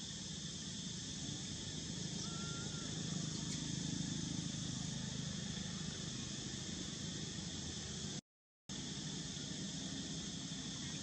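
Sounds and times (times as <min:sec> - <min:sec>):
insect chorus drone: 0:00.0 - 0:11.0
faint short chirp: 0:02.2 - 0:03.6.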